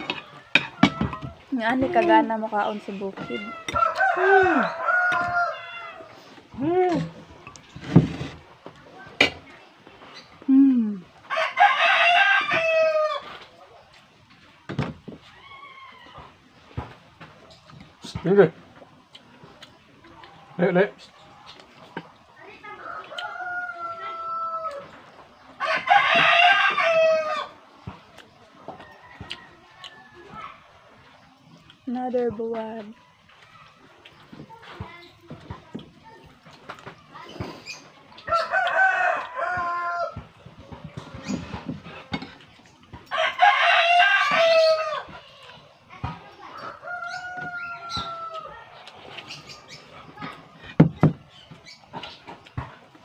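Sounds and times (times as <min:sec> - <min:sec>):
rooster crowing: 0:03.2 - 0:06.2, 0:11.3 - 0:13.4, 0:22.8 - 0:24.9, 0:25.6 - 0:27.6, 0:38.2 - 0:40.3, 0:43.0 - 0:45.1, 0:46.6 - 0:48.6.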